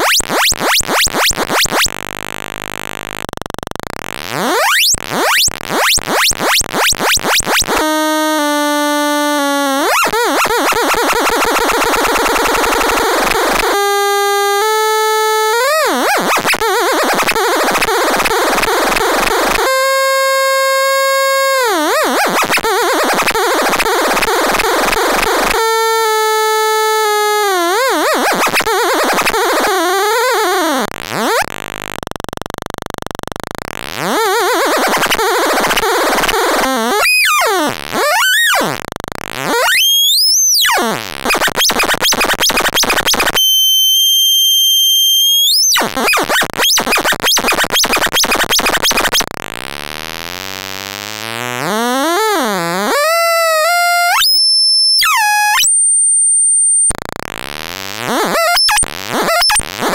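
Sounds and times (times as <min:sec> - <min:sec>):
warbling buzzy synth tone: 0:00.0 - 0:59.9.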